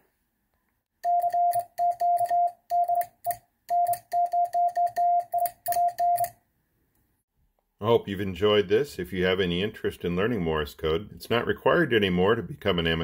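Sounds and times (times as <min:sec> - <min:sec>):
morse code beeps: 0:01.0 - 0:03.1, 0:03.7 - 0:06.3.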